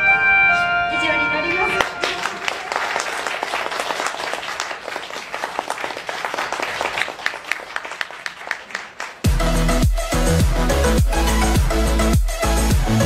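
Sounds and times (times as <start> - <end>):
audience applauding: 1.8 - 9.3.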